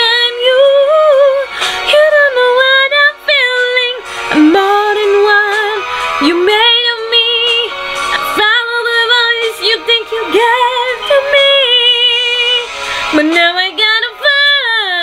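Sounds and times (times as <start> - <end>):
woman singing: 0.0 - 15.0
breath: 1.5 - 1.9, 4.0 - 4.3, 12.7 - 13.2.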